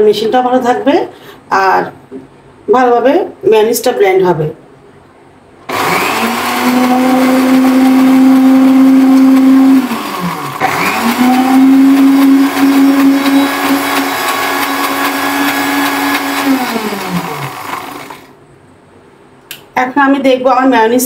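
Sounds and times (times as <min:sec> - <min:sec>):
electric blender motor running: 0:05.7 - 0:18.3.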